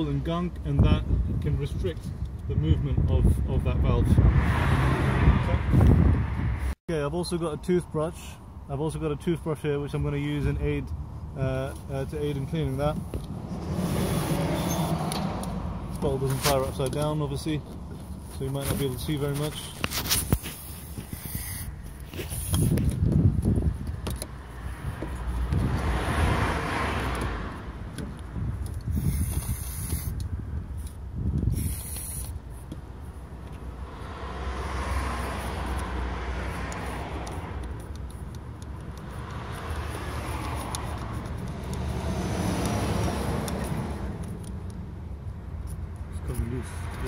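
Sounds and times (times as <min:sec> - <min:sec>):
hand scrubbing and handling: 0:11.8 - 0:26.0, 0:34.9 - 0:44.8
aerosol spray hissing: 0:31.5 - 0:32.4.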